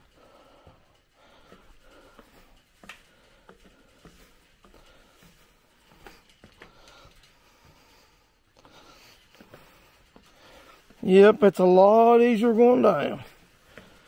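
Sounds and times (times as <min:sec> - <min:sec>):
soft breathing: 0:00.0 - 0:11.0, 0:13.2 - 0:14.0
footsteps on stairs: 0:00.0 - 0:11.1.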